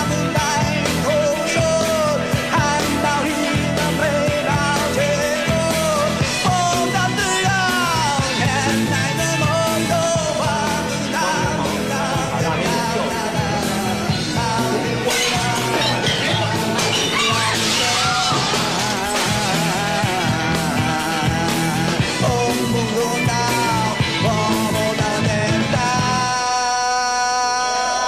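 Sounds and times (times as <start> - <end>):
live rock band: 0.0 - 28.0
person singing: 0.0 - 28.0.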